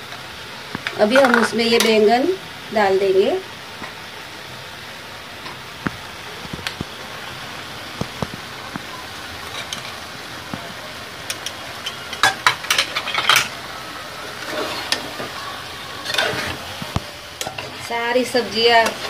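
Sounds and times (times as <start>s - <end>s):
vegetables sizzling in oil: 0.0s - 19.0s
steel spoon scraping a pot: 14.4s - 15.2s, 16.0s - 16.7s.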